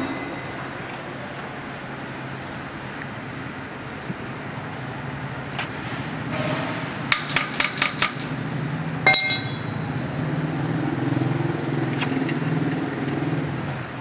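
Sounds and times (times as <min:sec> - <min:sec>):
ringing metal clink: 0:09.1 - 0:09.9.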